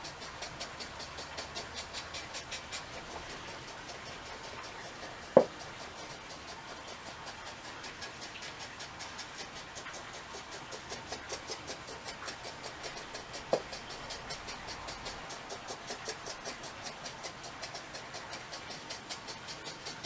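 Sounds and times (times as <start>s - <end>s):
faint rapid ticking: 0.0s - 20.0s
wooden block knocking on table: 5.3s - 5.6s.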